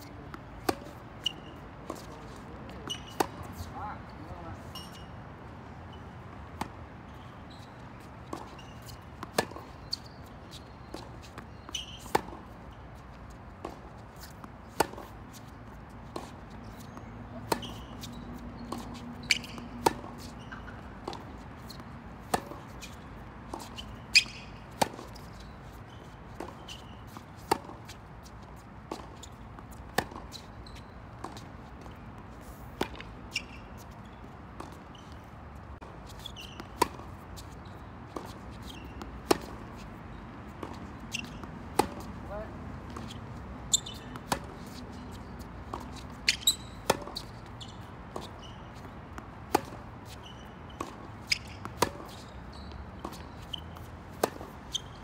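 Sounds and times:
tennis ball struck by racket: 0.6s - 2.1s, 8.3s - 10.1s, 10.9s - 12.4s, 13.6s - 15.2s, 16.1s - 25.3s, 26.4s - 27.9s, 28.9s - 30.4s, 32.5s - 33.9s, 36.2s - 37.2s, 38.1s - 40.0s, 40.6s - 47.4s, 48.1s - 49.9s, 50.8s - 52.2s, 53.0s - 54.9s
ball bounces on hard court: 16.2s - 22.7s.

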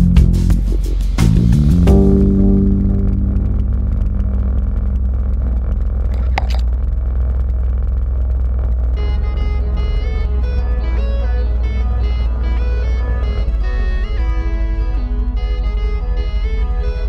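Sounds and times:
background music: 0.0s - 5.5s, 9.0s - 17.0s
quad bike engine rumbling: 0.0s - 17.0s.

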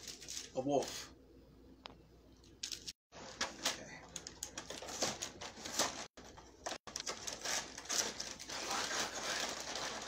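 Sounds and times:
plastic wrapper crinkling: 4.1s - 10.0s.

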